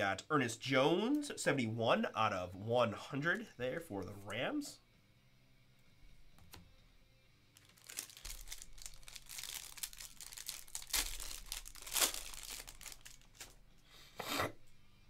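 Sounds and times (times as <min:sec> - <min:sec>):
plastic sleeve crinkling: 0:07.6 - 0:13.7.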